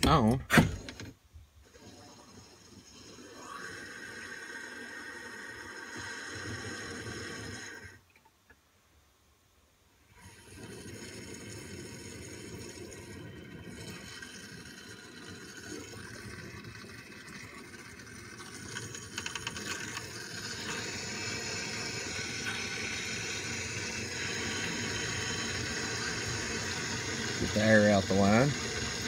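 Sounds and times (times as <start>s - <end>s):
water rushing from a pipe: 1.6s - 8.0s, 10.1s - 29.0s
water sputtering with air: 10.2s - 29.0s.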